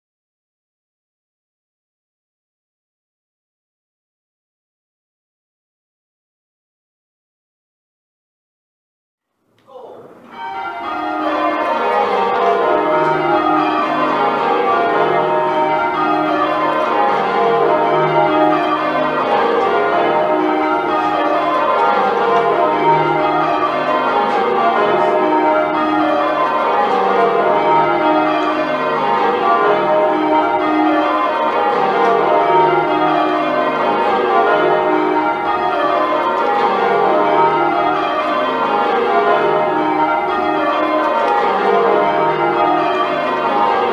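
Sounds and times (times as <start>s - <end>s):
church bells change ringing: 10.2s - 43.9s.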